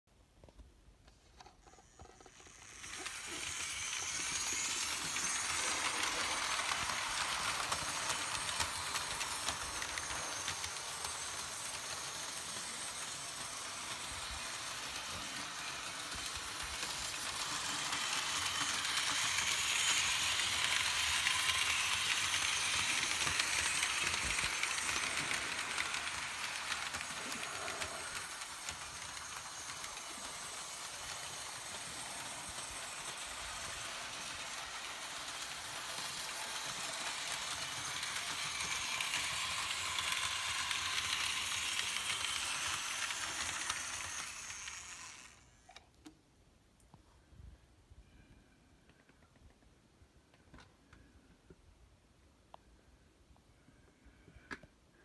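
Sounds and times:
model train running on metal track: 0:01.4 - 0:45.8
model train hiss: 0:02.0 - 0:45.7.

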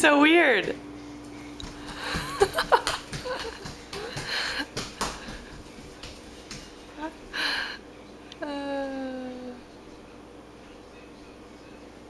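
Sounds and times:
small footsteps on hardwood floor: 0:00.6 - 0:07.4.

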